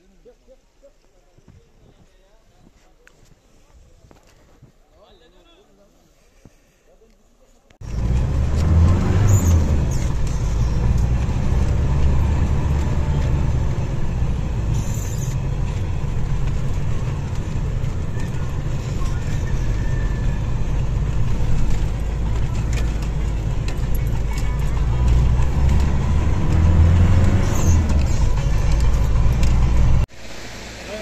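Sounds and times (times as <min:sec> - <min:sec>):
vehicle engine rumble inside cabin: 0:07.8 - 0:30.1.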